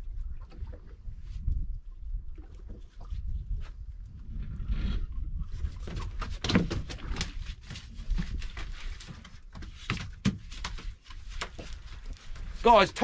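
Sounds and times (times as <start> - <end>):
wind buffeting microphone: 0.0 - 8.5.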